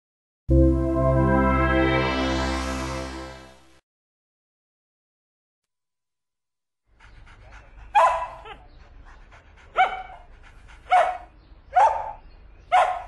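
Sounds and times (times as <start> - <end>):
dog barking: 7.9 - 8.6, 9.8 - 10.2, 10.9 - 13.0.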